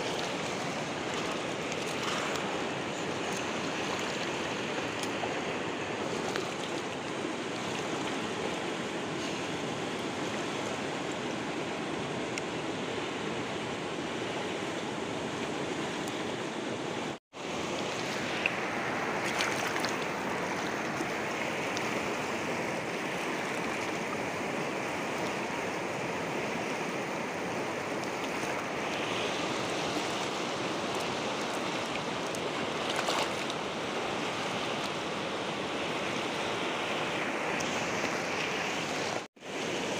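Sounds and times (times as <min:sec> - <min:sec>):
steady rushing outdoor noise: 0:00.0 - 0:39.9.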